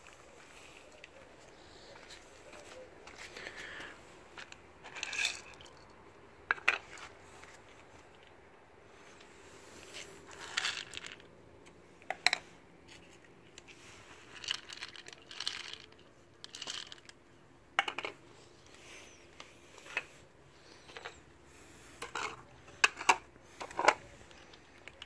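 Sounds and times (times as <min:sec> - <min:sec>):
kibble rattling in plastic bowls: 0:04.4 - 0:05.9, 0:10.3 - 0:11.3, 0:12.1 - 0:17.2.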